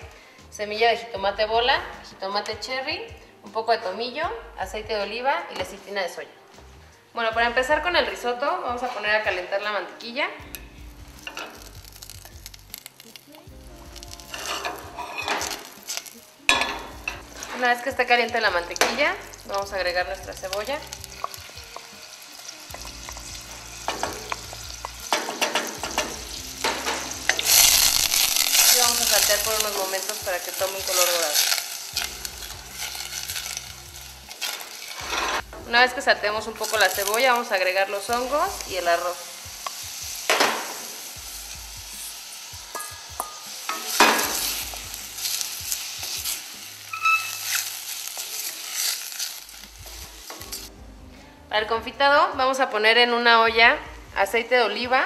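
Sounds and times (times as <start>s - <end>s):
onion sizzling in butter: 10.5s - 50.8s.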